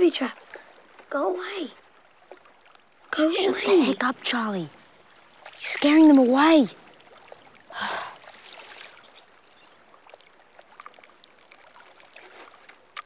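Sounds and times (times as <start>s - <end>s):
water lapping and trickling: 0.0s - 13.0s
faint small clicks: 10.1s - 13.0s.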